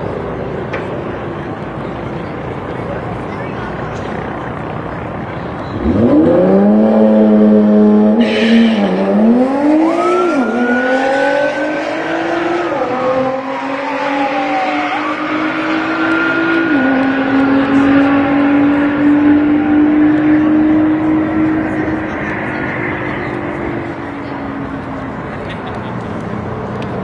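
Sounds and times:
motorcycle engine revving: 0:05.6 - 0:24.2.

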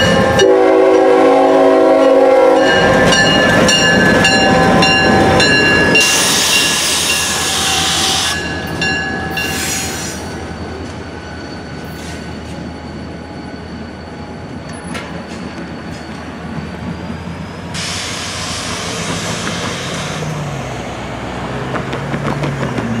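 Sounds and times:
diesel locomotive engine rumble: 0:00.0 - 0:23.0
loud rushing hiss: 0:06.0 - 0:08.4, 0:17.7 - 0:20.4.

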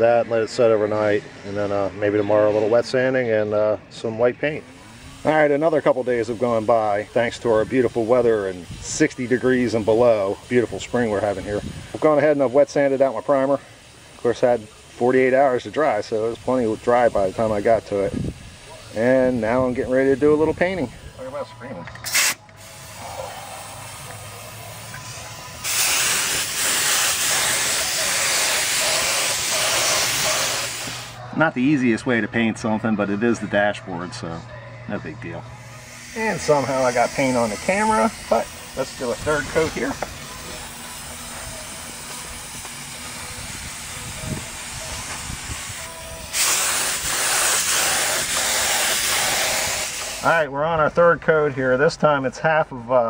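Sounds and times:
spray gun hissing: 0:04.8 - 0:21.4, 0:22.0 - 0:31.2, 0:35.6 - 0:50.3.

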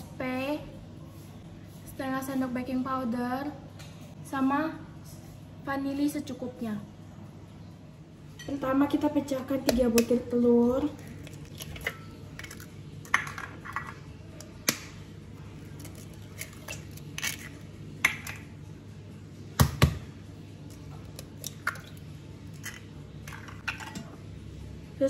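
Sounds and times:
eggs cracking on metal bowl: 0:10.8 - 0:15.0, 0:15.6 - 0:18.6, 0:20.6 - 0:24.2.

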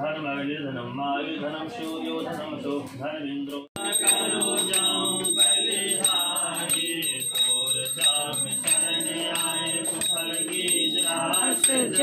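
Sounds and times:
group singing: 0:01.0 - 0:12.0
hand bell ringing: 0:03.8 - 0:12.0
rhythmic hand-clapping: 0:03.8 - 0:12.0.

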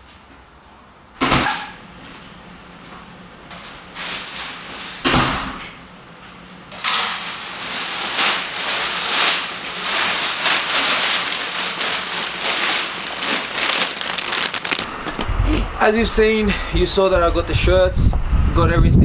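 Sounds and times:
plastic bag rustling: 0:03.5 - 0:05.1, 0:06.4 - 0:15.7.

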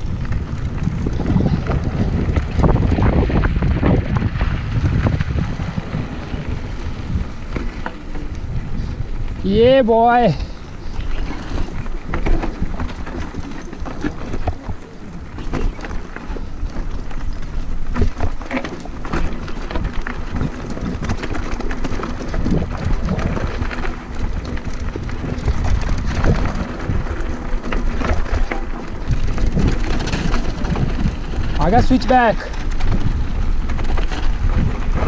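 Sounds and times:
steady low rumble: 0:00.0 - 0:09.5
bike tyres crunching over stones: 0:00.0 - 0:35.0
bike knocks and clatter: 0:10.8 - 0:35.0.

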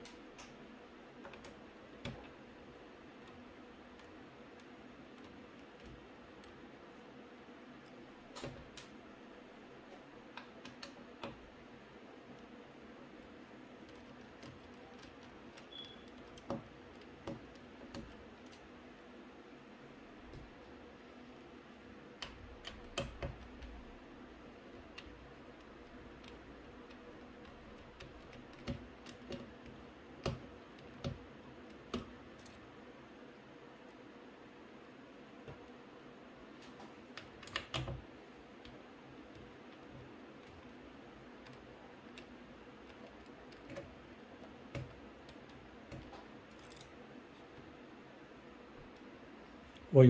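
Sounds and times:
light clicks of screwdriver and screws: 0:41.4 - 0:47.6.

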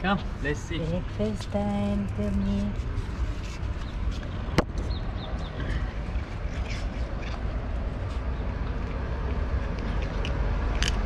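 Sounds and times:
street traffic rumble: 0:00.0 - 0:11.0
cat crunching dry kibble: 0:08.8 - 0:11.0.

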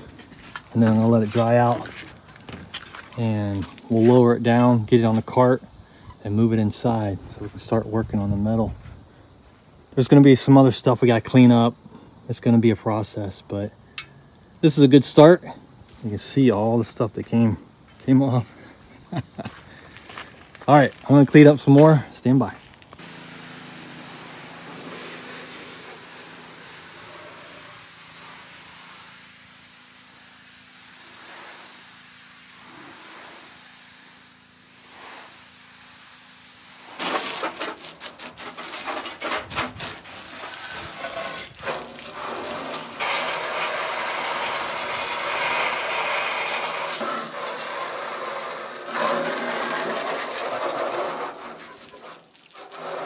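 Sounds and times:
pressure washer spraying: 0:23.0 - 0:53.0
water jet spraying on sheet metal: 0:23.0 - 0:53.0.

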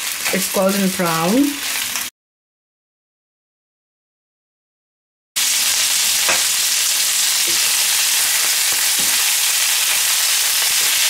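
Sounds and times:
sausages sizzling in a pan: 0:00.0 - 0:02.1, 0:05.4 - 0:11.0.

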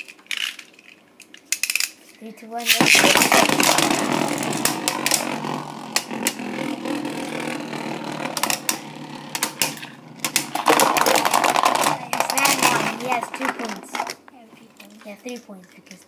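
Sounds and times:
spinning tops clacking together: 0:02.6 - 0:14.3
spinning tops whirring and rattling: 0:02.6 - 0:14.3.

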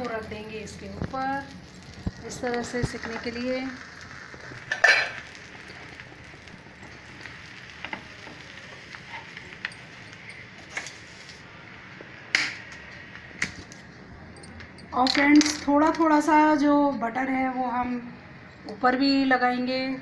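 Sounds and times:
butter sizzling in frying pan: 0:00.0 - 0:13.3.

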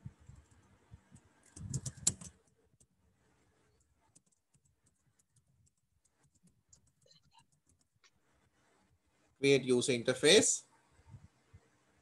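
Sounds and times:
keyboard key clicks: 0:01.5 - 0:02.4.

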